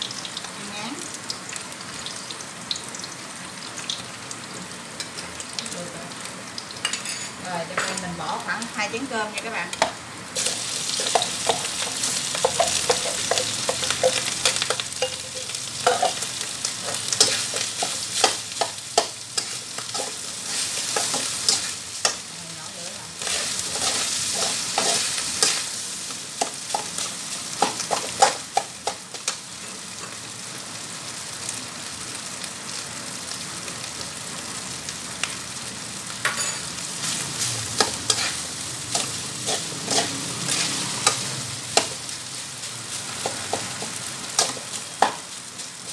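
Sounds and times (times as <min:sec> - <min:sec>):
rice sizzling in a wok: 0:00.0 - 0:45.9
metal spatula scraping a wok: 0:10.4 - 0:22.3, 0:23.2 - 0:25.8, 0:36.4 - 0:42.0.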